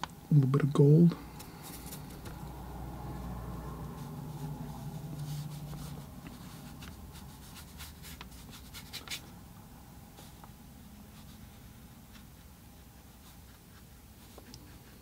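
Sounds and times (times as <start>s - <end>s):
brush stroking on paper: 3.2s - 9.3s, 10.1s - 15.0s.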